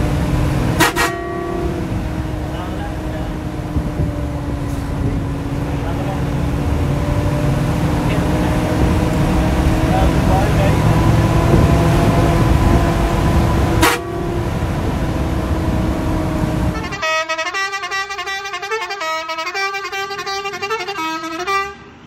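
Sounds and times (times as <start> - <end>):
bus engine and road noise: 0.0 - 22.0
stepping horn-like melody: 0.7 - 5.0, 10.8 - 21.9.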